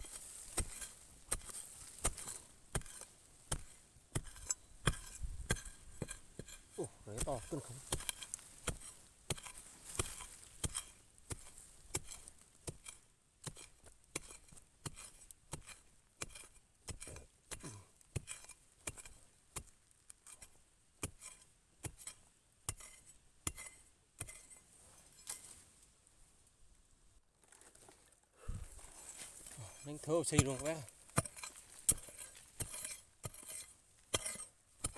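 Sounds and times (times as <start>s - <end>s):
digging tool chopping into soil: 0.0s - 19.7s, 29.2s - 34.9s.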